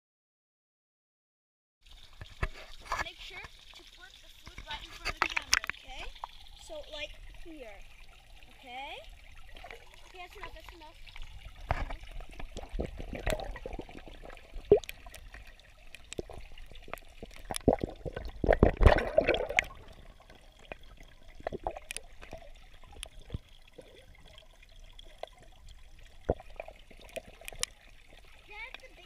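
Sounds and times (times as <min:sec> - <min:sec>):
fish splashing at water surface: 0:08.8 - 0:29.0.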